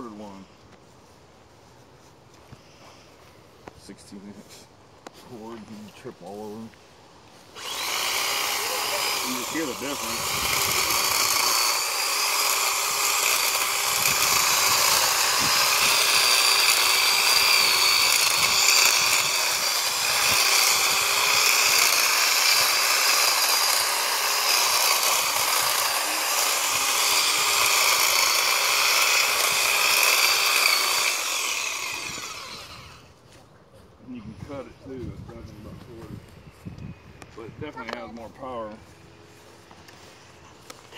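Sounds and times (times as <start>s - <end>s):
electric hedge trimmer cutting brush: 7.4s - 33.2s.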